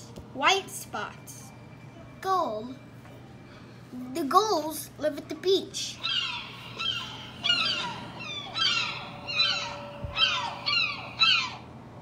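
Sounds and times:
gulls calling: 0:05.9 - 0:12.0.

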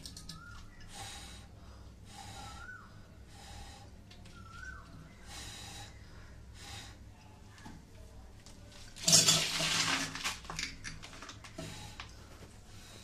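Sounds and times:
steady low hum: 0:00.0 - 0:09.4
person breathing hard: 0:00.9 - 0:04.0, 0:05.2 - 0:07.1.

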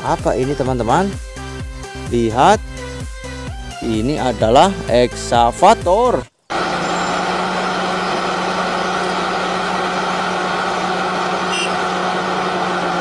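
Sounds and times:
heavy vehicle engine idling: 0:06.5 - 0:13.0.

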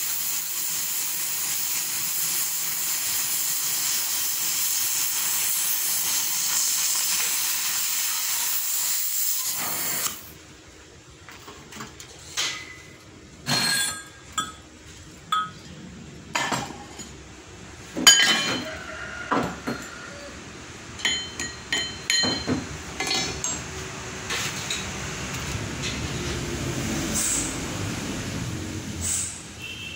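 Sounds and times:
cutting torch hissing: 0:00.0 - 0:10.4, 0:27.0 - 0:28.1, 0:28.7 - 0:29.6
metal knocks and clinks: 0:15.3 - 0:15.6.

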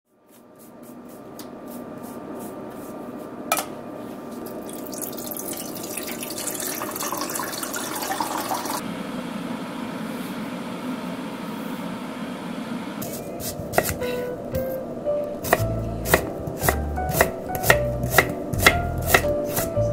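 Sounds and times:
water pouring into saucepan: 0:04.6 - 0:08.8
knife knocking on chopping board: 0:13.8 - 0:14.7, 0:15.5 - 0:19.7.

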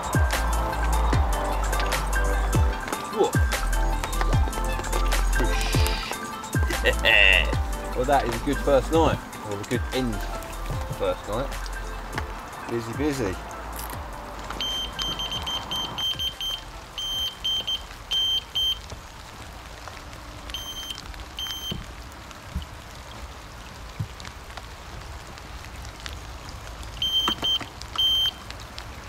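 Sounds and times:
rain hiss: 0:00.0 - 0:29.0
electronic bite alarm beeping: 0:14.6 - 0:18.8, 0:20.6 - 0:21.8, 0:27.0 - 0:28.4.

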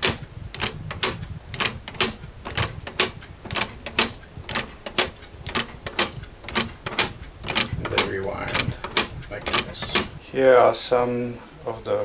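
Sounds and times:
clock ticking: 0:00.0 - 0:10.2.

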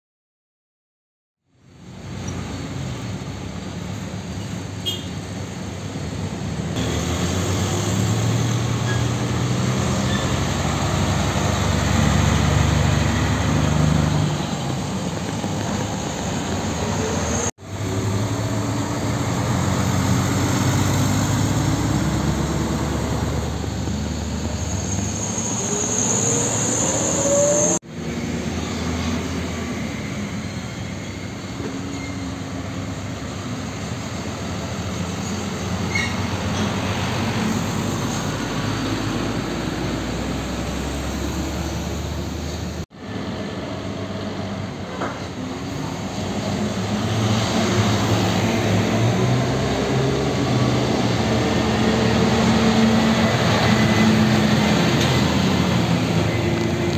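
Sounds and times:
diesel trucks driving past: 0:01.6 - 0:56.9
truck engine pitch rising: 0:06.8 - 0:31.0, 0:34.0 - 0:44.8, 0:45.4 - 0:56.9.

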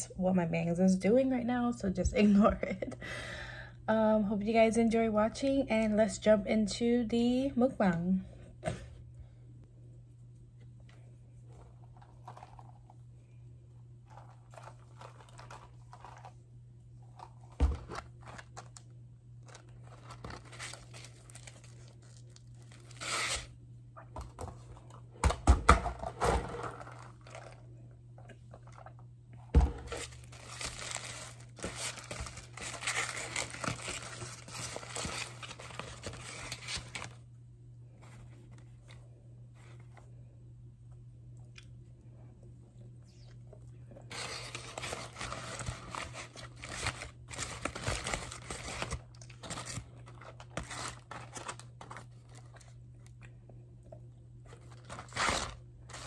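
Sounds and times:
faint low hum: 0:00.0 - 0:56.0
paper packaging crinkling and tearing: 0:11.6 - 0:12.9, 0:14.0 - 0:16.4, 0:17.0 - 0:23.6, 0:26.0 - 0:27.6, 0:29.8 - 0:37.2, 0:44.1 - 0:52.8, 0:54.5 - 0:56.0.

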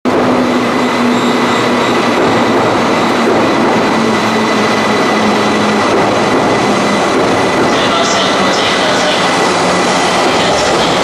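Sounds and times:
electric train pulling in: 0:00.1 - 0:11.0
platform din: 0:05.1 - 0:11.0.

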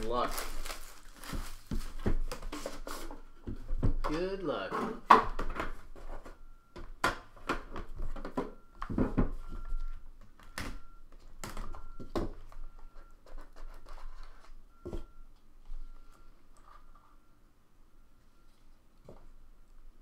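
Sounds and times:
cardboard scraping and knocking: 0:01.2 - 0:06.4.

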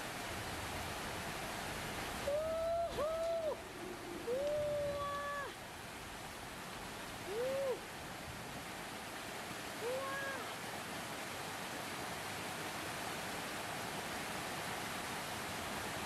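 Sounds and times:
water rushing over rocks: 0:00.0 - 0:16.0
person exclaiming: 0:02.3 - 0:03.6, 0:04.3 - 0:05.6, 0:07.3 - 0:07.8, 0:09.8 - 0:10.6.

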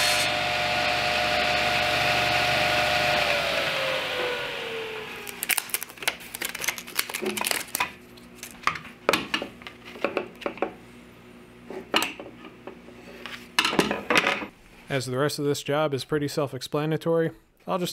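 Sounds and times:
table saw winding down: 0:00.0 - 0:05.5.

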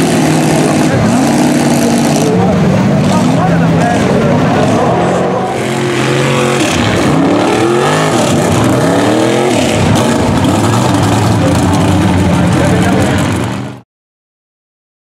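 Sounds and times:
truck engines revving in mud: 0:00.0 - 0:13.8.

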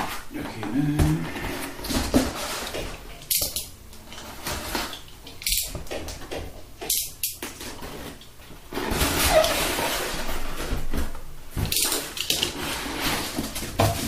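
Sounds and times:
cardboard scraping on cardboard: 0:12.5 - 0:14.0.

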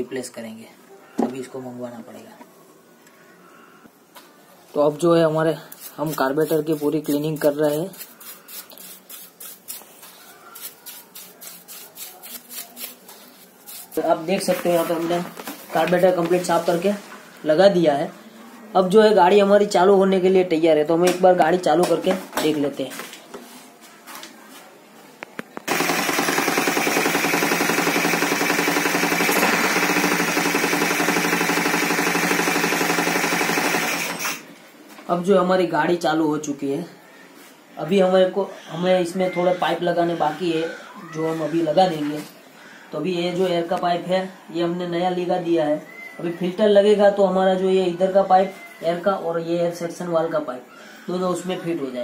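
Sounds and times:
brush scrubbing wet metal: 0:05.4 - 0:15.2
scooter engine running: 0:25.7 - 0:34.3.

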